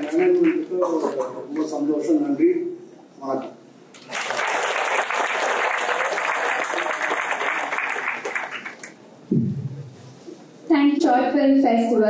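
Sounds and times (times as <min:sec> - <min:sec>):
audience applauding: 0:00.0 - 0:01.4, 0:04.0 - 0:09.0
low thump: 0:09.3 - 0:09.9.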